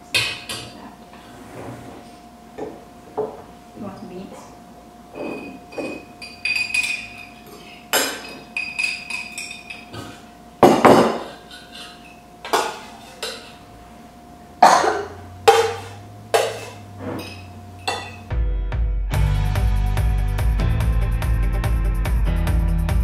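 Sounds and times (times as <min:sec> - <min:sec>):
faint steady hum: 0:00.0 - 0:18.3
utensils clinking on metal pots: 0:05.1 - 0:13.6, 0:14.6 - 0:18.3.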